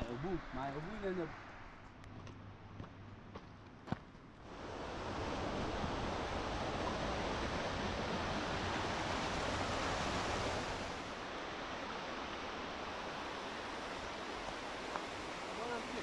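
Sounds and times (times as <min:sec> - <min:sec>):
flowing water rushing: 0:04.5 - 0:16.0.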